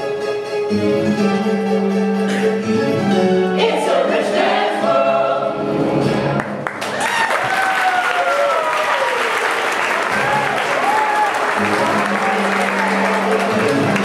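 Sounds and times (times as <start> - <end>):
instrumental accompaniment: 0.0 - 6.7, 11.3 - 14.0
audience applause: 6.4 - 14.0
falling whoop: 6.9 - 9.4, 10.1 - 13.2.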